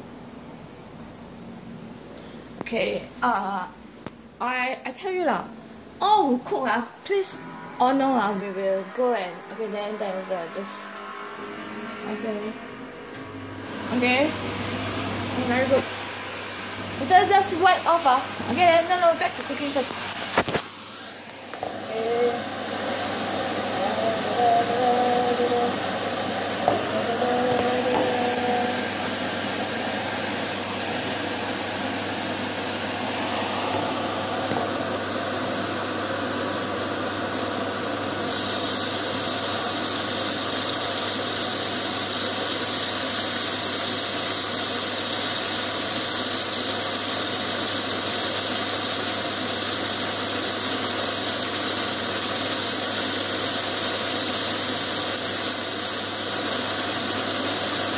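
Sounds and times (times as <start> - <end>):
stovetop cooking hiss: 14.0 - 57.9.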